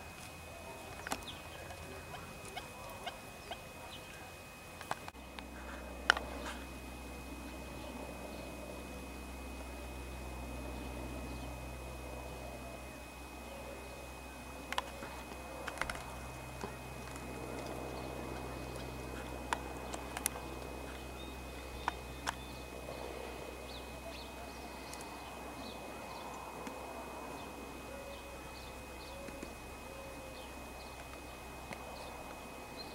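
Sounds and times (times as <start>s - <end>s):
animal rooting in pebbles: 0.0s - 6.7s, 13.7s - 26.8s
low background hum: 0.0s - 32.9s.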